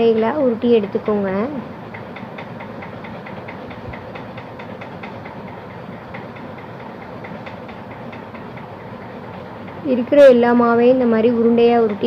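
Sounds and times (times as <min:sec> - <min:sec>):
machine running with rapid ticking: 0:00.0 - 0:12.0.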